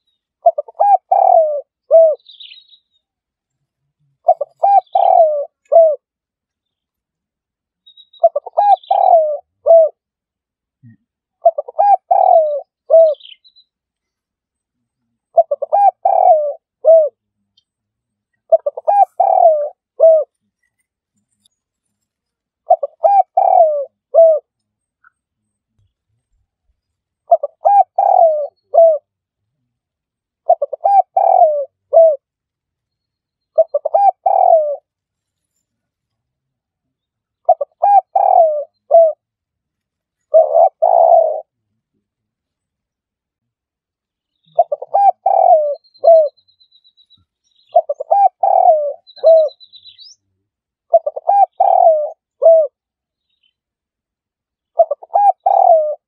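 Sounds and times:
dove cooing: 0:00.4 - 0:02.6, 0:04.2 - 0:06.1, 0:08.2 - 0:10.0, 0:11.4 - 0:13.4, 0:15.2 - 0:17.2, 0:18.5 - 0:20.3, 0:22.6 - 0:24.5, 0:27.3 - 0:29.1, 0:30.4 - 0:32.3, 0:33.5 - 0:34.9, 0:37.4 - 0:39.2, 0:40.2 - 0:41.6, 0:44.5 - 0:46.4, 0:47.7 - 0:50.1, 0:50.9 - 0:52.8, 0:54.7 - 0:56.0.

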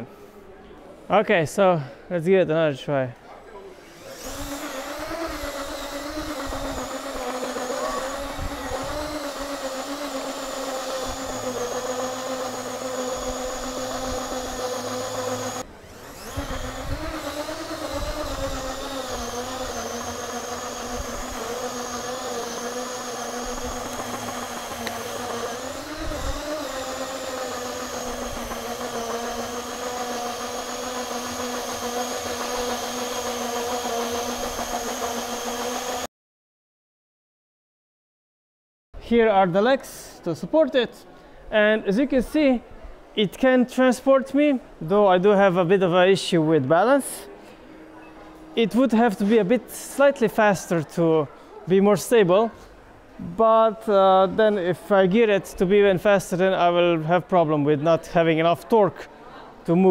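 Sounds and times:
electric motors whining: 0:03.8 - 0:36.1.

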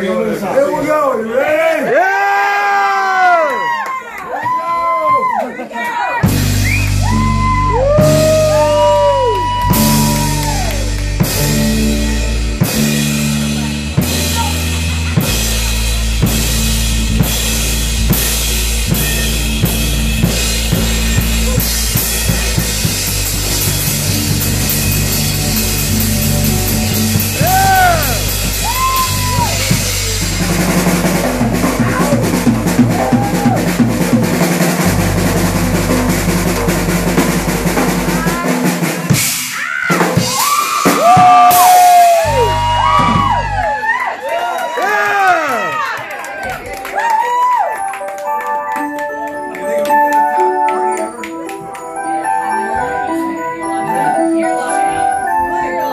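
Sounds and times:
audience whooping: 0:01.9 - 0:11.2, 0:27.1 - 0:30.2, 0:31.5 - 0:34.0, 0:39.5 - 0:48.1
bass notes: 0:06.2 - 0:39.5, 0:40.3 - 0:44.0
drum kit snare and cymbal crashes: 0:06.2 - 0:43.6
live rock band playing: 0:06.2 - 0:44.0, 0:46.4 - 0:55.9.

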